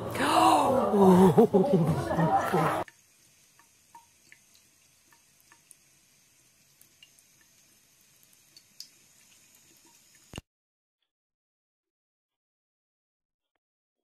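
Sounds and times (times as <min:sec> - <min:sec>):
small water drips: 0:02.8 - 0:10.4
tap water trickling into sink: 0:02.8 - 0:10.4.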